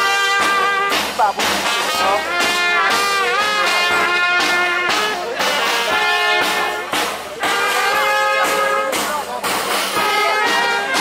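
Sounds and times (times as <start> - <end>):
steady drumbeat: 0.0 - 11.0
trumpets and trombones: 0.0 - 11.0.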